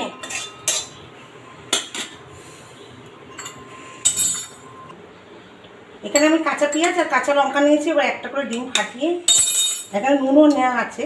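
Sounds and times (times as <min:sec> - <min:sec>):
kitchenware clinking on glass bowl: 0:00.2 - 0:01.0, 0:08.5 - 0:10.6.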